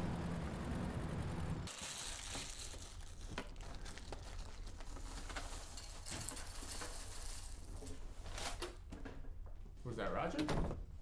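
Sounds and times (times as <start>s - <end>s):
packaging crinkling: 1.7s - 8.0s.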